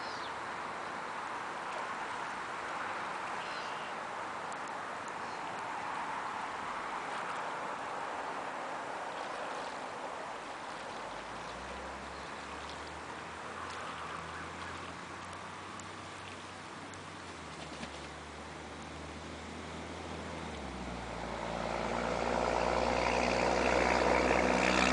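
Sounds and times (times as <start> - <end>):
low engine hum: 0.0 - 24.9
geese splashing in water: 1.2 - 18.6.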